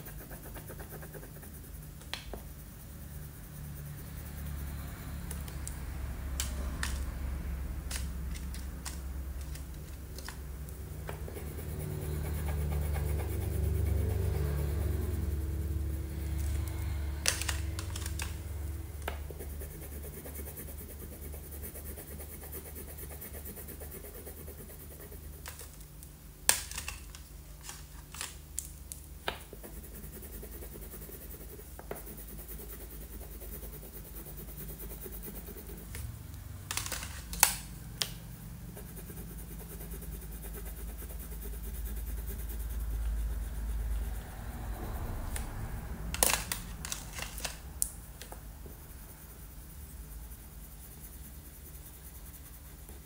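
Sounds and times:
crayon scratching on paper: 0.0 - 4.6, 11.0 - 25.9, 29.4 - 36.1, 38.4 - 45.5, 48.6 - 53.0
steady low hum: 0.0 - 53.0.

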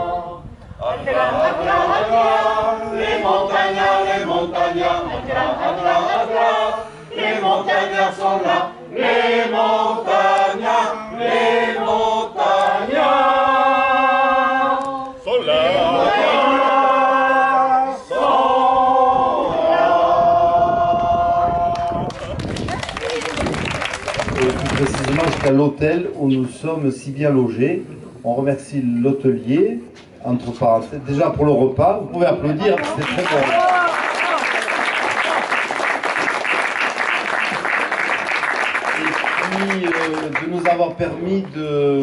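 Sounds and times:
group singing unaccompanied: 0.0 - 22.0.

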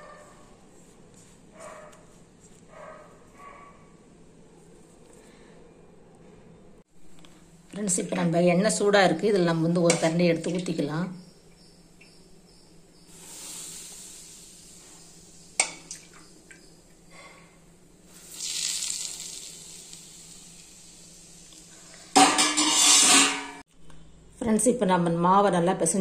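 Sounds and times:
hot oil pouring hiss: 13.1 - 15.9, 18.0 - 23.1
metal clatter: 22.2 - 23.6.

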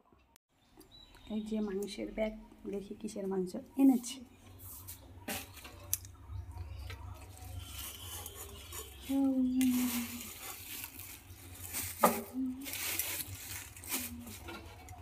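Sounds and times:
woven shopping bag rustling: 7.3 - 15.0.

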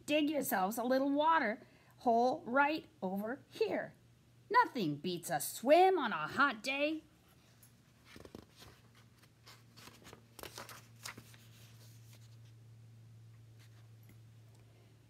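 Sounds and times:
steady low hum: 5.7 - 15.0
paper page turning: 8.0 - 12.6.

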